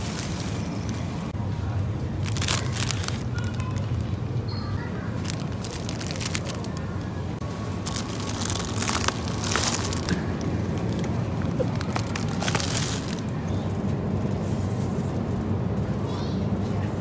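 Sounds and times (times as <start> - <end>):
low background hum: 0.0 - 17.0
plastic packaging crinkling: 2.2 - 4.1, 5.2 - 13.3.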